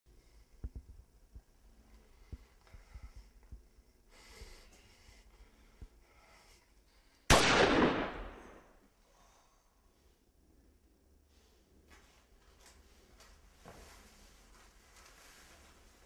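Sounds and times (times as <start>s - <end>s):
handgun shot: 7.3s - 8.7s.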